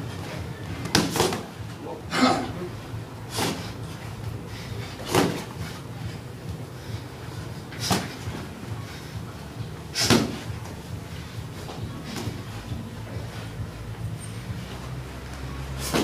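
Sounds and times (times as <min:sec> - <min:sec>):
steady low hum: 0:00.0 - 0:16.0
punch impacts: 0:05.0 - 0:05.5, 0:10.0 - 0:10.5.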